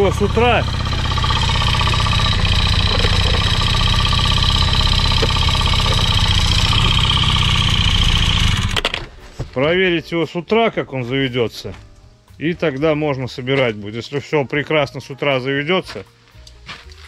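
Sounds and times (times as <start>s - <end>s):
scooter two-stroke engine idling: 0.0s - 9.1s.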